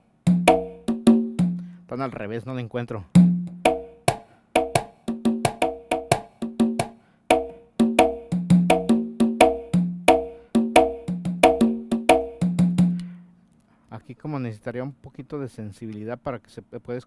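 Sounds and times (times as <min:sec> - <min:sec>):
electronic conga hits: 0:00.0 - 0:01.8, 0:03.1 - 0:13.2.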